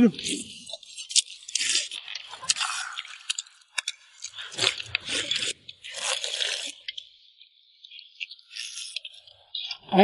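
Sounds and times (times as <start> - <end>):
person slurping soup: 0.2 - 7.0.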